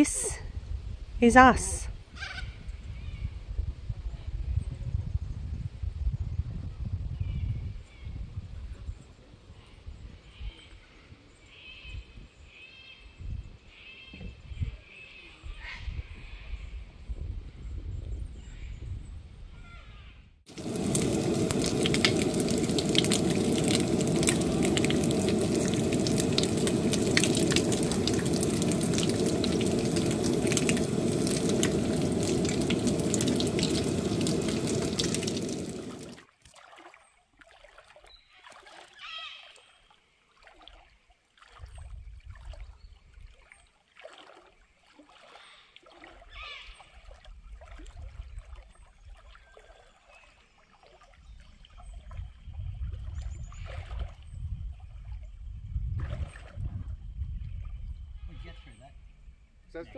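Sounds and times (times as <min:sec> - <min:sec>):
bacon sizzling and crackling: 0:20.5 - 0:36.2
low rumbling: 0:20.5 - 0:36.2.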